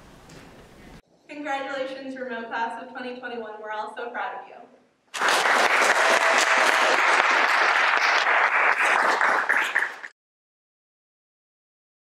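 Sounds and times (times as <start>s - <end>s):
applause: 5.1s - 10.2s.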